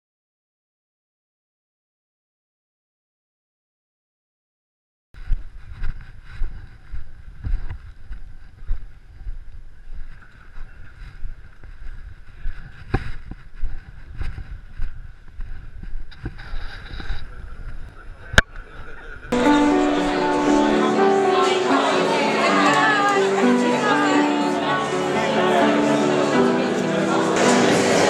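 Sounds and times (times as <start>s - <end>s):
microphone handling noise: 5.2s - 19.0s.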